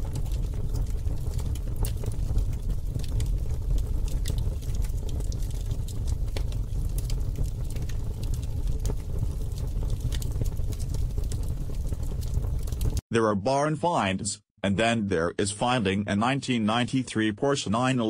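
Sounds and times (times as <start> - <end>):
crackles and clicks: 0.0 - 13.0.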